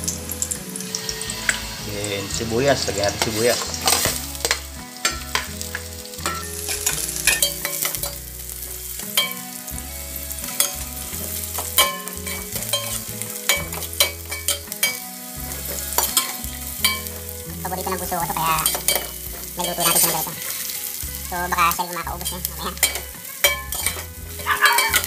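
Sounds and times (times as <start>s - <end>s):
onion sizzling in hot oil: 0.0s - 25.0s
metal ladle scraping a pot: 2.9s - 9.6s, 10.2s - 17.3s, 18.3s - 25.0s.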